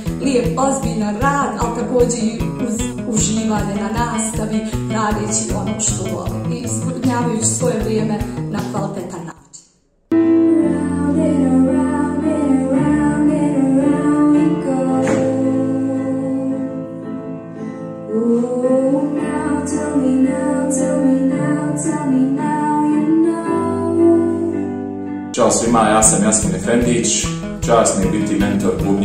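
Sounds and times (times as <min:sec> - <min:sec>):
sustained chord accompaniment: 0:10.1 - 0:18.1
girl singing into microphone: 0:10.2 - 0:17.0, 0:18.0 - 0:24.8.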